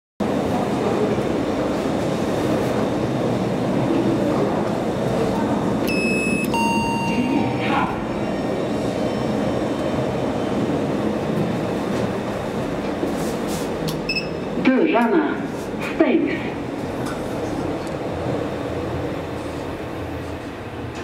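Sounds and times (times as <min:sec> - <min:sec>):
railway station background noise: 0:00.2 - 0:21.0
two-note electronic chime: 0:05.9 - 0:07.6.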